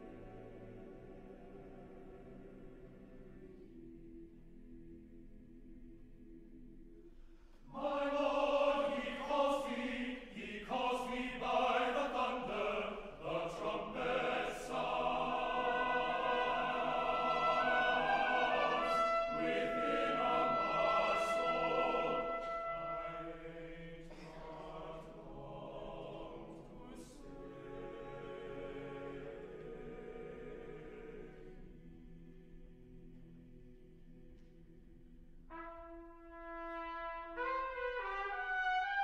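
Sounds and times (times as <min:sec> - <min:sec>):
mixed choir singing: 0:00.0 - 0:03.7, 0:07.7 - 0:34.4.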